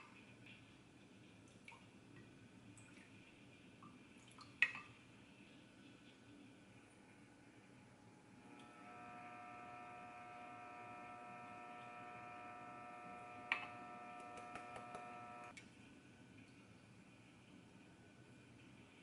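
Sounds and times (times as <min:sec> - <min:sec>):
electric motor hum: 0:07.0 - 0:15.5
sharp clicks: 0:13.4 - 0:15.5.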